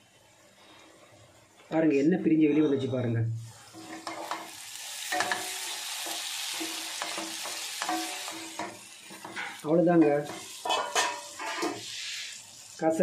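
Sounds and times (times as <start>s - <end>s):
food sizzling in oil: 3.3s - 13.0s
wooden spatula scraping pan: 9.1s - 12.3s.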